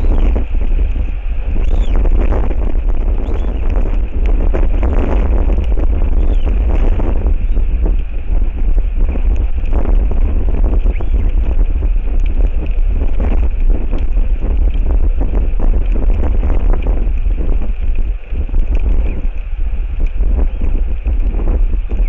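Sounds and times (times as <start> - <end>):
strong wind buffeting microphone: 0.0 - 22.0.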